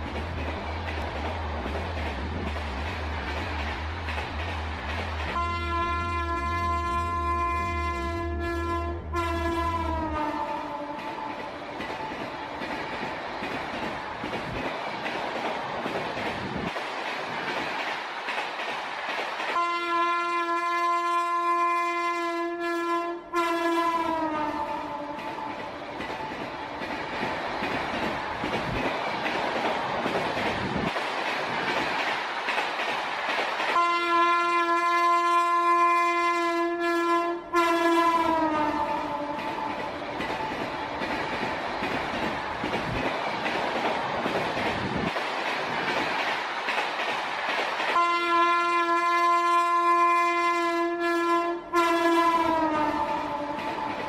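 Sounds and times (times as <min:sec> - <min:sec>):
train wheels rumbling and clattering: 0:00.0 - 0:22.2, 0:23.5 - 0:36.8, 0:37.5 - 0:51.0, 0:51.6 - 0:54.0
train horn blasts: 0:05.3 - 0:11.4, 0:19.6 - 0:25.5, 0:33.8 - 0:39.7, 0:48.0 - 0:53.7.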